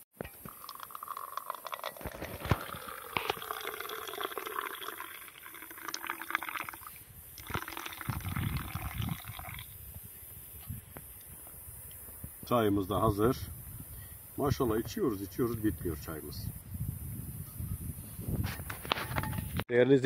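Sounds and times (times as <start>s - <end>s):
tea being poured: 0.3s - 9.7s.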